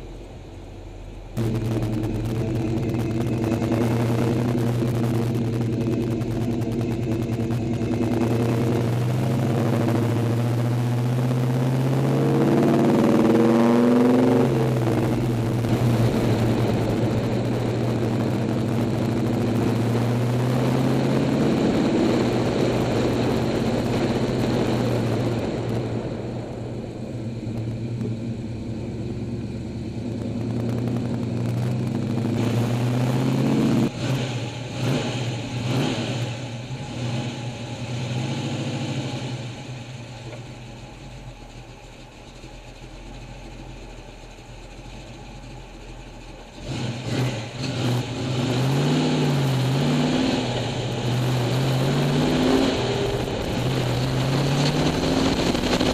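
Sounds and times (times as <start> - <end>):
car engine revving while driving: 1.4 - 26.3, 27.3 - 40.8, 46.4 - 55.9.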